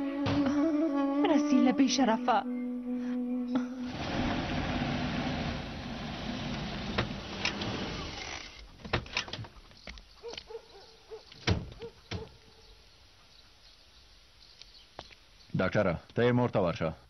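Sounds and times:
car engine running: 0:03.9 - 0:08.2
vehicle door knocks and clunks: 0:11.4 - 0:12.3.

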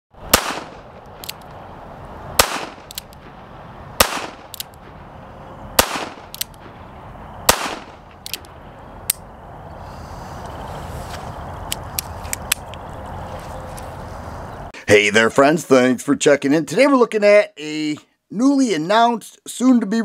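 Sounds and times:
hammer cocking clicks: 0:00.4 - 0:01.6, 0:02.4 - 0:03.3, 0:04.0 - 0:04.9, 0:05.8 - 0:06.7, 0:07.5 - 0:09.2.

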